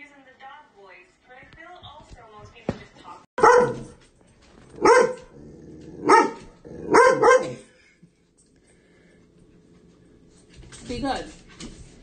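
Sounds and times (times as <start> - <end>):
small dog barking: 3.4 - 4.0, 4.8 - 5.3, 6.0 - 7.6.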